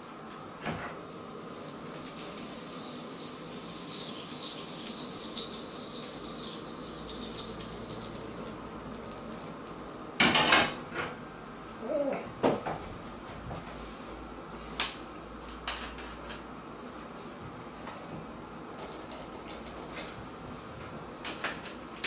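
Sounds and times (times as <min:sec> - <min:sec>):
batter sizzling in a pan: 0:00.0 - 0:11.8, 0:18.7 - 0:20.4.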